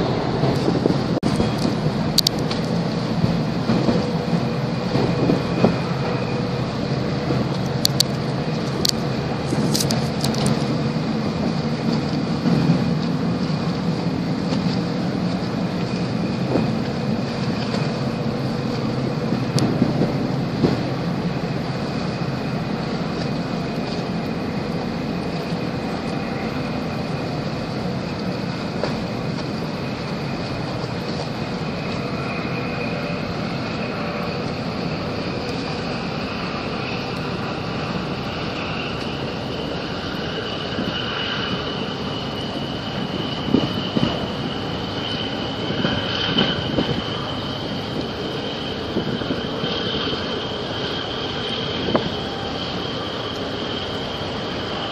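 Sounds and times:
boat engine drone: 0:00.0 - 0:54.9
water and wind noise: 0:00.0 - 0:54.9
faint high whine: 0:04.3 - 0:54.9.

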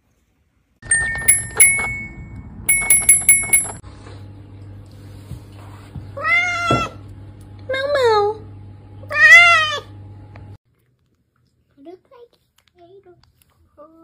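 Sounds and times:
bright ringing clinks: 0:00.8 - 0:03.8
cat meowing: 0:06.2 - 0:07.0.

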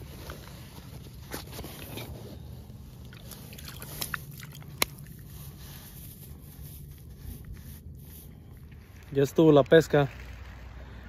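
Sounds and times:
phone handling scrapes and rustling: 0:00.0 - 0:02.6
low steady rumble: 0:00.0 - 0:11.0.

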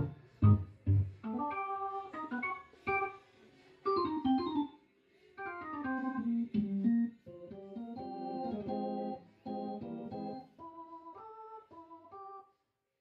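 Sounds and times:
synthesizer chords and phrases: 0:05.8 - 0:11.2.

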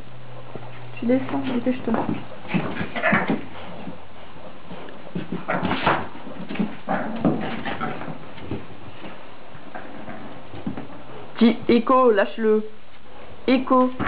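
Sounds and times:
dogs tussling: 0:00.4 - 0:12.1.

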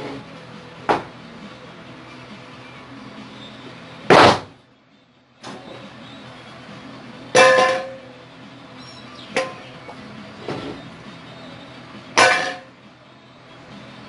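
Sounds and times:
metal bowl clanging: 0:12.2 - 0:12.7.

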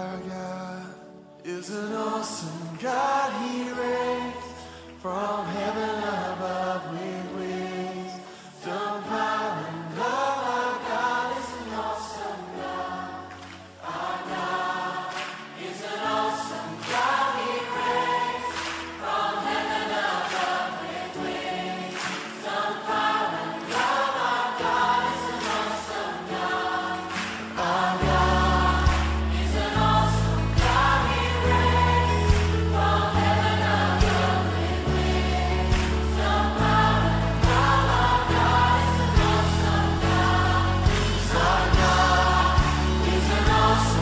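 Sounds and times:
choir singing: 0:00.0 - 0:44.0
backing music: 0:10.8 - 0:44.0.

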